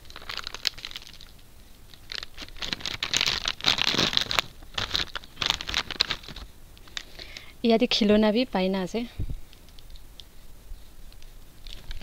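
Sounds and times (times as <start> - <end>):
plastic packet crinkling and tearing: 0.0 - 7.3, 11.6 - 12.0.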